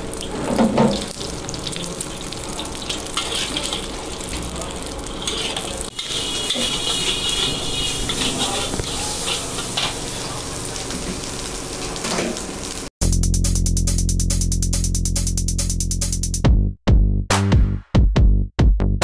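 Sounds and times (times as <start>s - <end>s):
rice sizzling in a wok: 0.0s - 12.9s
ladle scraping and clanking pan: 2.9s - 3.9s, 5.1s - 10.3s
electronic music with drum beat: 13.0s - 19.0s.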